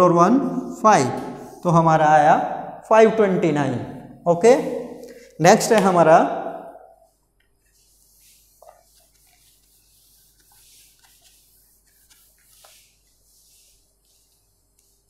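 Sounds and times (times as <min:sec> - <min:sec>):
eraser rubbing whiteboard: 0:07.0 - 0:15.0.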